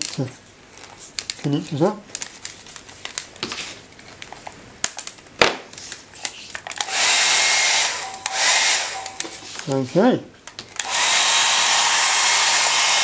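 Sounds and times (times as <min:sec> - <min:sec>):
tape crackling: 0:00.0 - 0:06.9.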